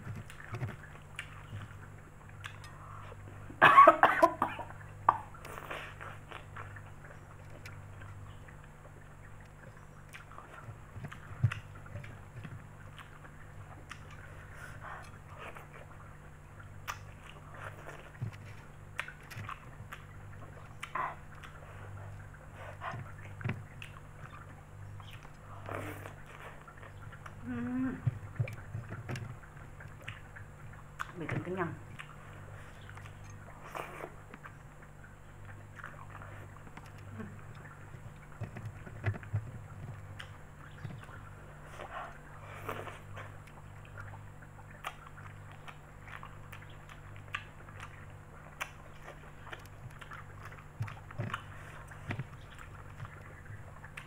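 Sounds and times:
steady low hum: 0.0s - 54.0s
spaghetti slurping and chewing: 5.2s - 54.0s
person humming: 27.4s - 28.1s.

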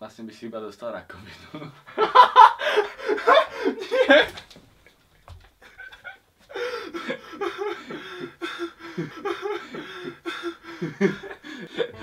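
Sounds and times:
young men laughing hard: 1.6s - 4.4s, 6.8s - 12.0s.

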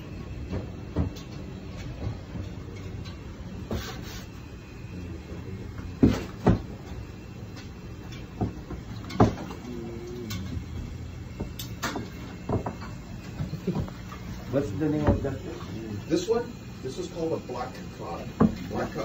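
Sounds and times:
sharp knocks and thumps: 8.3s - 9.6s, 10.7s - 13.0s.

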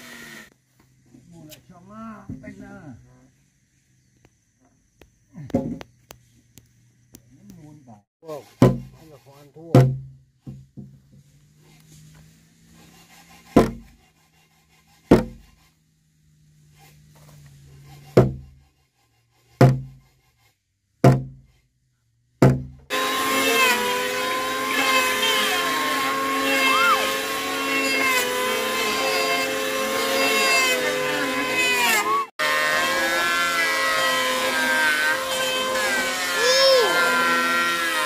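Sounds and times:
power tool whining: 0.0s - 0.6s, 22.9s - 38.0s
tool knocking on timber: 8.6s - 9.0s, 9.7s - 11.0s, 13.6s - 13.9s, 15.1s - 15.4s, 18.2s - 18.5s, 19.6s - 20.0s, 21.0s - 21.4s, 22.4s - 22.8s.

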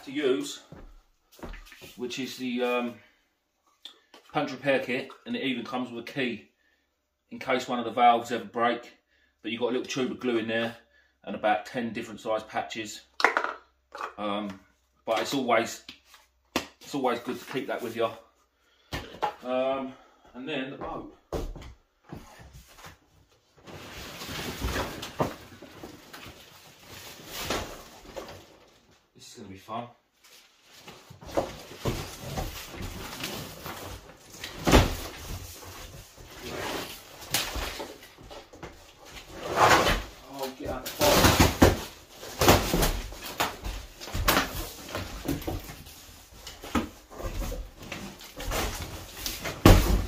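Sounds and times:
cardboard box scraping on floor: 39.2s - 40.1s.

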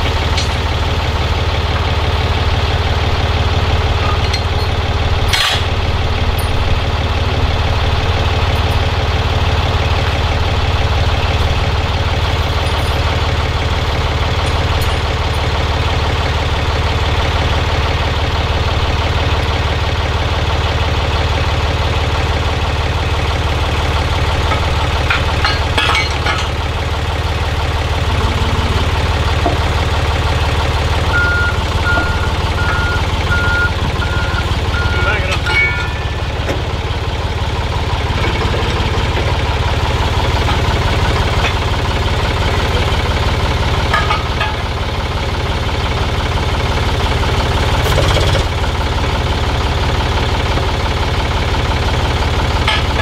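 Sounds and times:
heavy diesel engine idling: 0.0s - 53.0s
backup alarm beeping: 31.0s - 36.0s.

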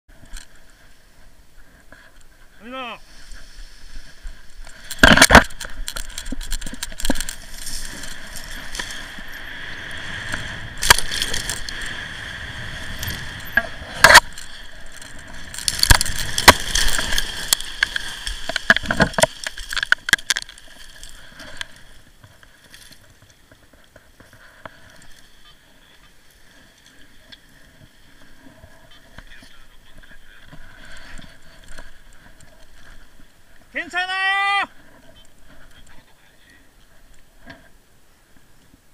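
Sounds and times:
faint rustles and clicks: 0.1s - 34.1s, 34.7s - 38.9s
branches cracking and snapping: 4.1s - 25.3s.

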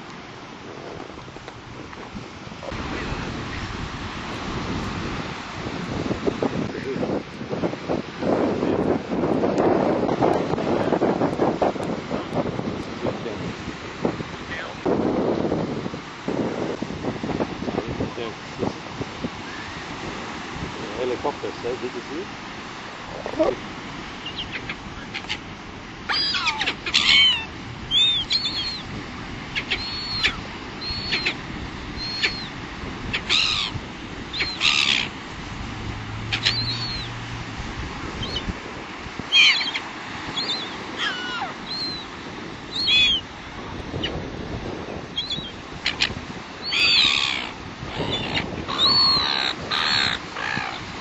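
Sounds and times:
surf: 0.0s - 51.0s
wind: 0.0s - 51.0s
gulls calling: 23.2s - 51.0s
seagulls squawking: 24.2s - 25.5s, 26.1s - 28.9s, 29.5s - 31.4s, 32.0s - 35.2s, 36.1s - 37.2s, 38.2s - 38.6s, 39.3s - 43.3s, 45.1s - 50.9s.

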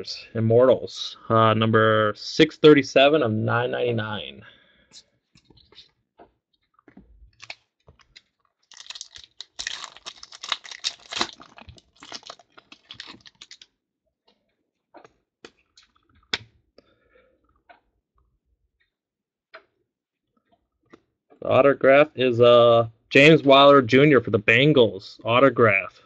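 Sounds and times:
foil pack tearing and crinkling: 7.4s - 13.7s.

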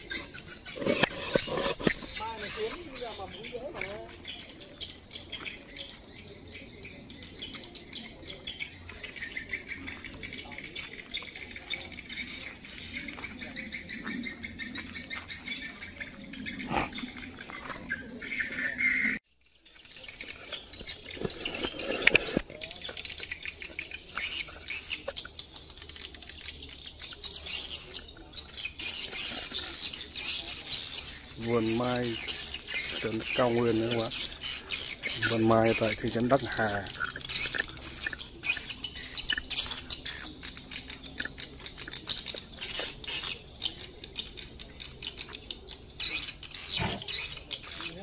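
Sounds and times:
birds chirping: 0.0s - 48.0s.

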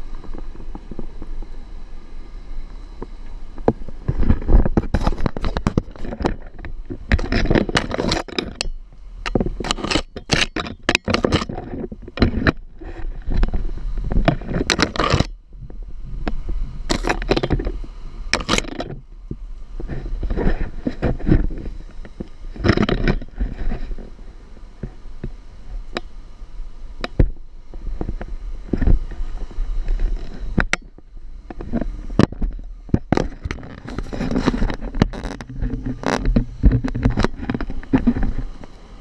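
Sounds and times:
vehicle low rumble: 0.0s - 7.9s, 11.5s - 39.0s
branches scraping vehicle body: 3.2s - 8.6s, 9.2s - 15.4s, 16.2s - 19.0s, 19.7s - 24.4s, 27.7s - 39.0s.

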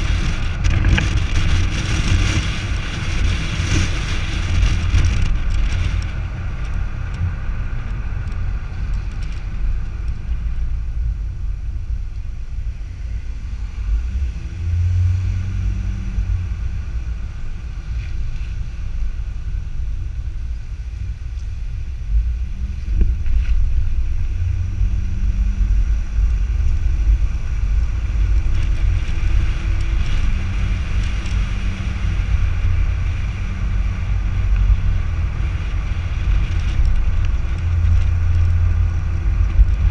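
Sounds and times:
wind and tyre rumble: 0.0s - 39.9s.

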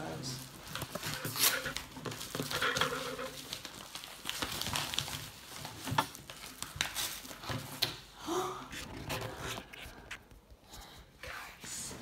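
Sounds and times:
package being handled and opened: 0.4s - 8.1s.

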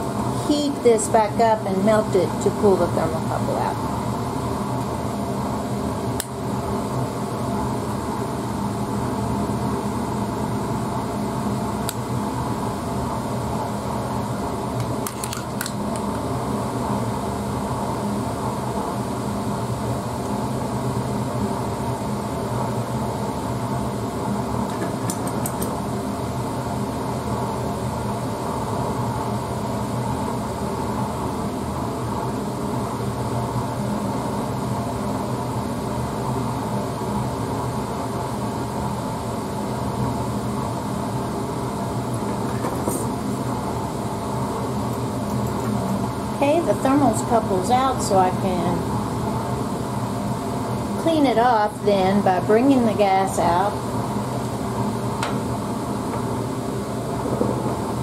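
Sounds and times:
ventilation running: 0.0s - 58.0s
burner flame rushing: 48.4s - 58.0s.

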